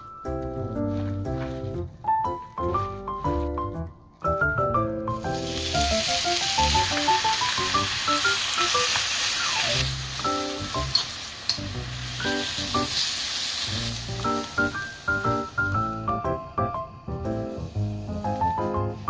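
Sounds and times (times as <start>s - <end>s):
background music: 0.0s - 19.0s
meat sizzling in pan: 5.2s - 16.6s, 17.3s - 19.0s.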